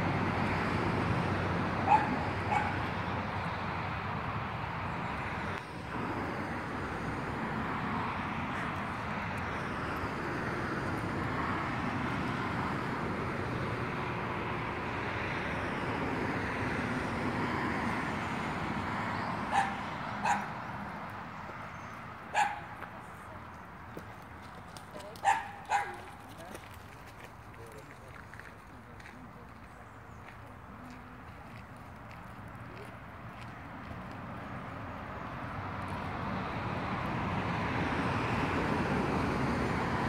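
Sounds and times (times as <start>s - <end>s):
puppy barking: 1.8s - 2.9s, 19.5s - 20.5s, 22.3s - 22.8s, 25.2s - 26.1s.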